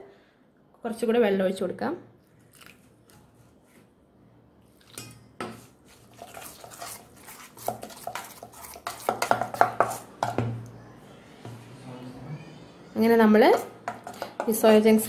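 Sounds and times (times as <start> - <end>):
whisk clicking and scraping steel bowl: 5.9 - 10.3.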